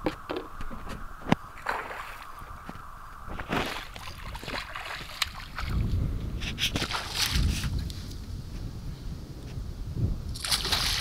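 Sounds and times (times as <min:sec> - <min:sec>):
wind rumble on microphone: 0:00.0 - 0:11.0
fish splashing in water: 0:01.6 - 0:02.5, 0:03.4 - 0:05.8, 0:10.4 - 0:11.0.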